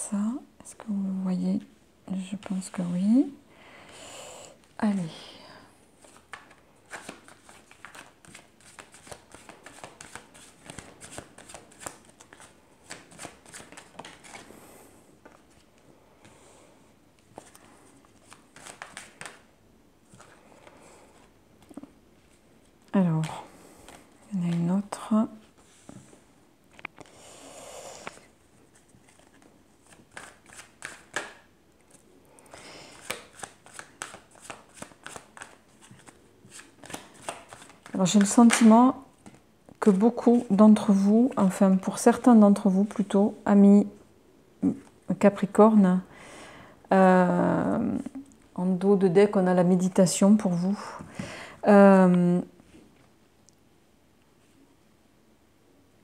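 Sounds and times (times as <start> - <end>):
cards being shuffled: 6.0 - 14.5, 17.2 - 19.5, 20.1 - 20.4, 28.0 - 32.0, 32.9 - 39.4.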